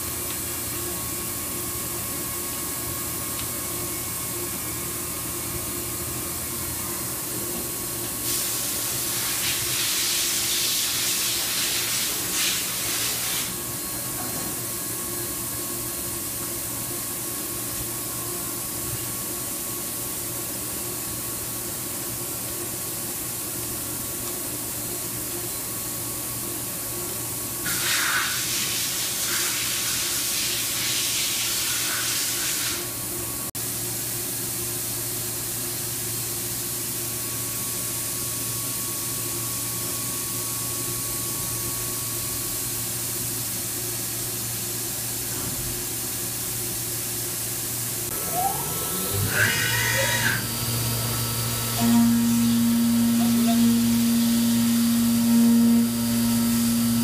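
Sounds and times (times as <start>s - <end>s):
milling machine hum: 47.4s - 57.0s.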